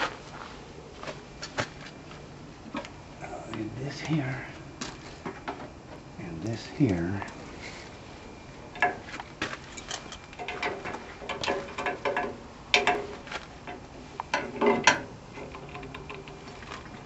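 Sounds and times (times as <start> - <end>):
metal hardware clicking and knocking: 9.7 - 16.4.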